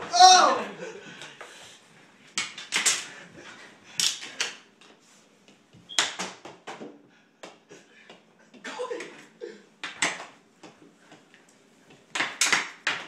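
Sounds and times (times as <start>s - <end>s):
hockey sticks and ball clacking: 9.8s - 13.0s.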